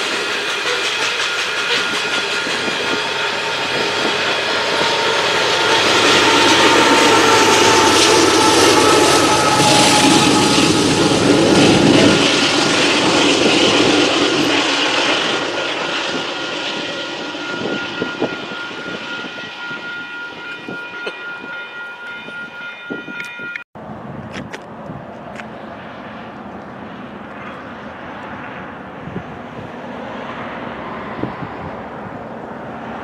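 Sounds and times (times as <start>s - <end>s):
train wheels rumbling and clattering: 0.0s - 23.6s
crossing warning bell ringing: 0.0s - 23.7s.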